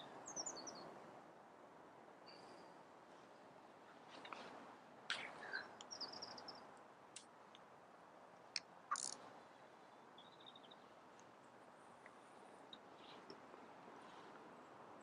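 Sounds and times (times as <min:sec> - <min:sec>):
bird chirps: 0:00.0 - 0:00.8, 0:05.1 - 0:06.7, 0:08.9 - 0:09.2, 0:10.2 - 0:10.9.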